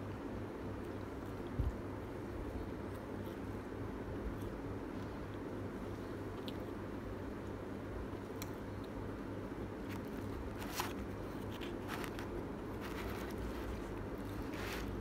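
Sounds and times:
steady low hum: 0.0 - 15.0
chewing: 4.3 - 6.8.

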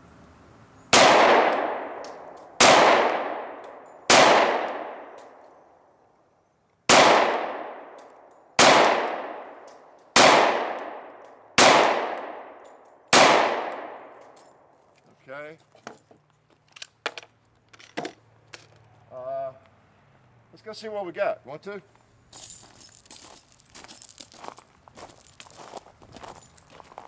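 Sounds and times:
pistol shots: 0.9 - 5.4, 6.9 - 14.3.

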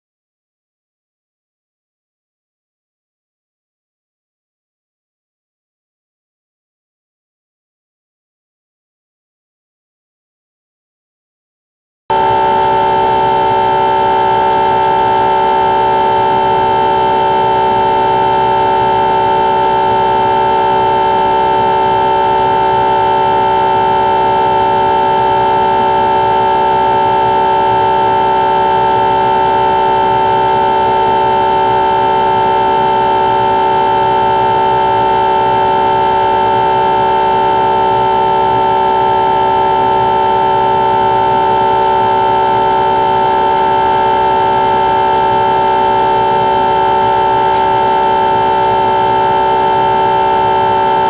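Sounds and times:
model plane motor whine: 12.2 - 51.0.

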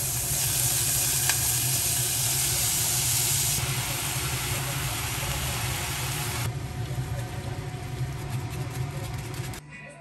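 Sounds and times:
food sizzling in a frying pan: 0.0 - 6.5.

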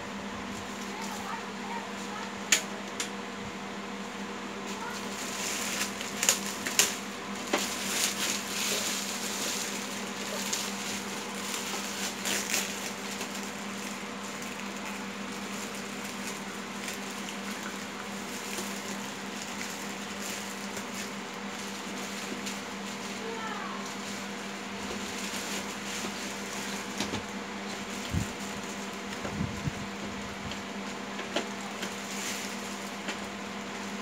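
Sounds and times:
steady background hum: 0.0 - 34.0
plastic bag crinkling: 4.8 - 23.1.

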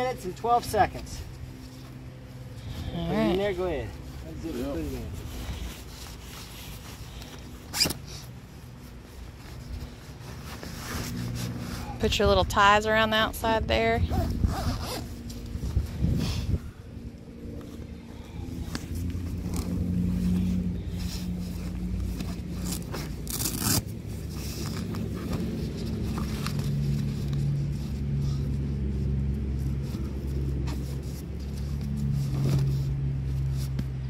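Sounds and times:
steady low hum: 0.0 - 34.0
fabric scraping and rustling: 0.5 - 34.0
straps pulled tight: 5.3 - 8.3, 21.0 - 28.0
zipper closing: 7.6 - 8.3, 14.0 - 16.2, 18.5 - 28.5.

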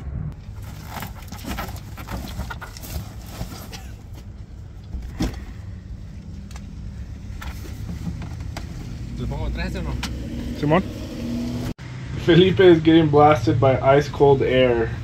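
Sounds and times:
low vehicle hum: 0.0 - 15.0
clicks and knocks of items shifted: 0.4 - 5.8.

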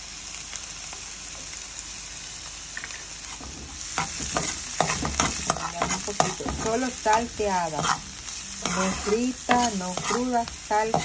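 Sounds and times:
vegetables sizzling in a pan: 0.0 - 11.0
utensil scraping a pan: 3.3 - 11.0.

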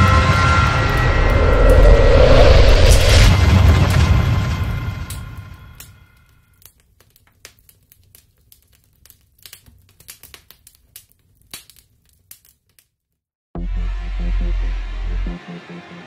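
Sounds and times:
boom: 0.0 - 6.0
crackling clicks: 5.8 - 12.9.

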